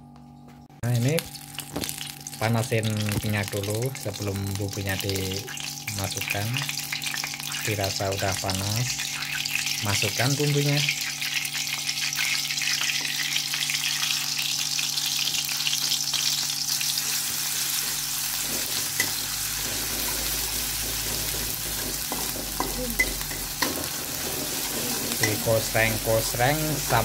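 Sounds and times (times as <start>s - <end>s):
paste sizzling in hot oil: 1.2s - 27.0s
metal spatula scraping pan: 17.0s - 26.0s.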